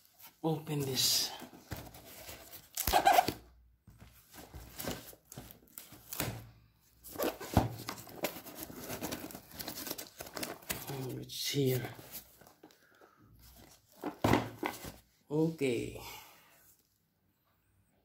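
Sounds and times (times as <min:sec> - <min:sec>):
plastic parcel rustling: 0:00.0 - 0:15.1.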